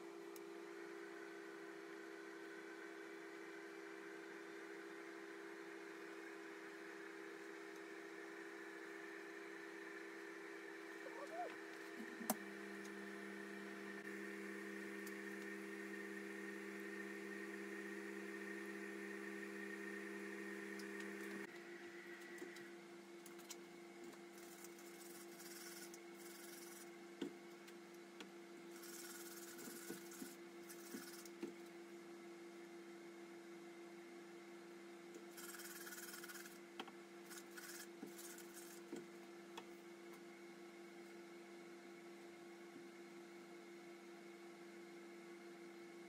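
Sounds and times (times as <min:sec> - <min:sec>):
steady electrical hum: 0:09.2 - 0:44.3.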